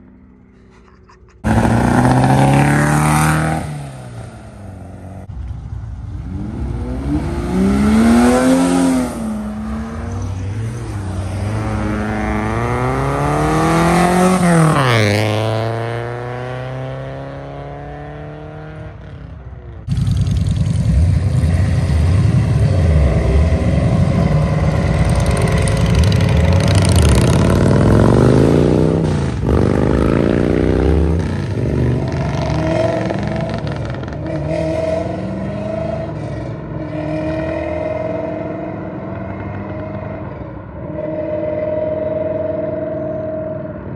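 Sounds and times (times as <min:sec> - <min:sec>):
car engines revving: 0:00.0 - 0:43.9
loud rough engine revving: 0:01.4 - 0:03.8, 0:19.9 - 0:39.0.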